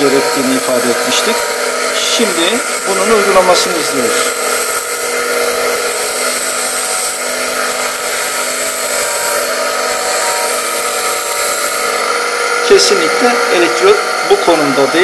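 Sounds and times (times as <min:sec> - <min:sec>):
bench grinder motor whine: 0:00.0 - 0:15.0
metal rod grinding hiss: 0:00.0 - 0:15.0.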